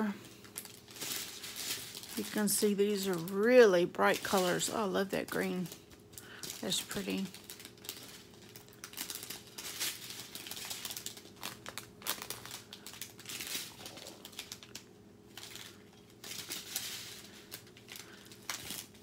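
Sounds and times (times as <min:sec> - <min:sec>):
plastic bags crinkling: 0:00.0 - 0:19.0.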